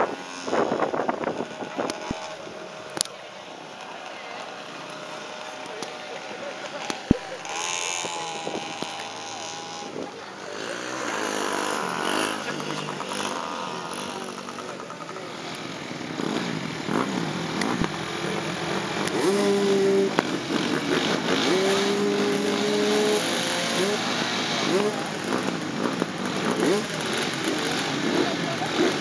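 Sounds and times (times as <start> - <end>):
dirt bike engine riding off: 0.0 - 29.0
small engine revving: 0.0 - 29.0.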